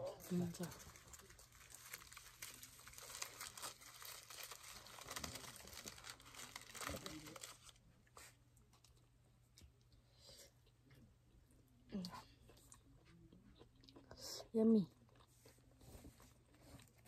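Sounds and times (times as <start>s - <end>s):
plastic food wrapper crinkling: 0.1s - 7.8s.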